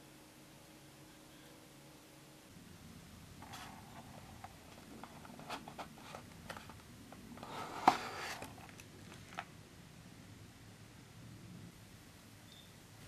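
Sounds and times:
cardboard scraping and tapping: 3.4 - 9.5
cardboard tray sliding: 7.4 - 8.8.

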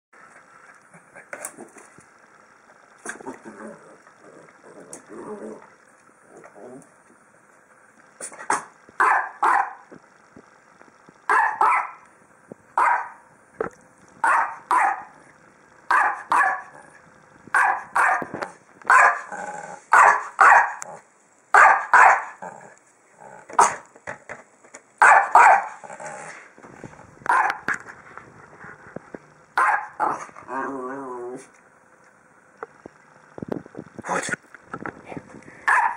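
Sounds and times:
small dog barking: 8.5 - 9.8, 11.3 - 12.0, 12.8 - 13.2, 14.2 - 15.2, 15.9 - 16.8, 17.5 - 18.3, 18.9 - 19.3, 19.9 - 20.9, 21.5 - 22.4, 23.6 - 23.8, 25.0 - 25.8, 27.3 - 27.7, 29.6 - 30.2, 35.6 - 35.9.

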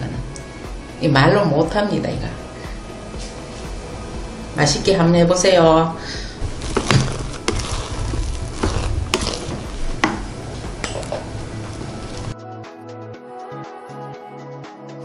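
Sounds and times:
background music: 0.0 - 15.0
rice paddle scraping pot: 6.4 - 12.3
paddle knocking against pot: 8.6 - 11.3.

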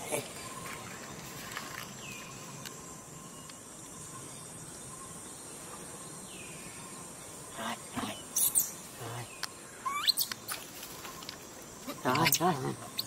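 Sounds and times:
steady insect hum: 0.0 - 13.0
high-pitched squeaking calls: 8.3 - 8.8, 9.8 - 10.6.

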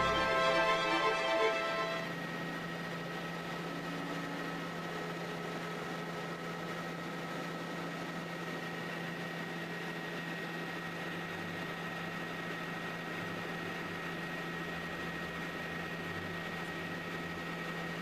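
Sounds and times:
thin high whine: 0.0 - 2.7
helicopter engine and rotor drone: 0.0 - 18.0.

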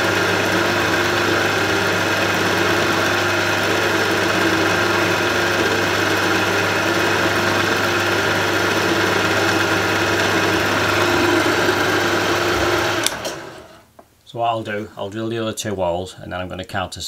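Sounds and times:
drill bit cutting brass: 0.0 - 13.6
milling machine spindle humming: 0.0 - 13.8.

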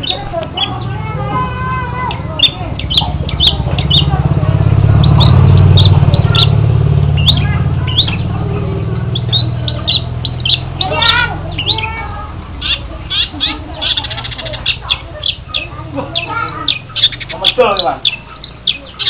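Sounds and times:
steady low rumble: 0.0 - 19.0
bird squawking harshly: 9.1 - 19.0.

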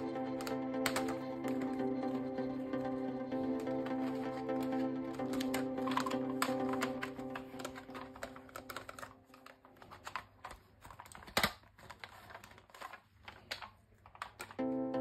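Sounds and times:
plastic toy clicks and taps: 0.3 - 1.8, 4.1 - 10.3.

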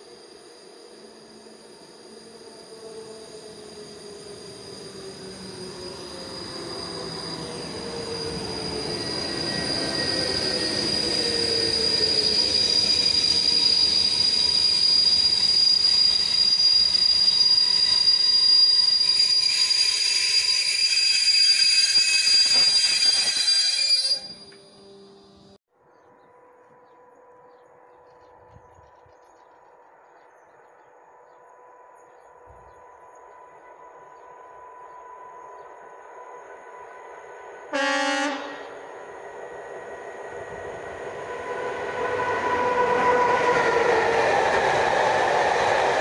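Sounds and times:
wheel and brake squeal: 0.0 - 25.5
electric locomotive whine: 0.0 - 46.0
train coaches rolling past: 0.0 - 46.0.

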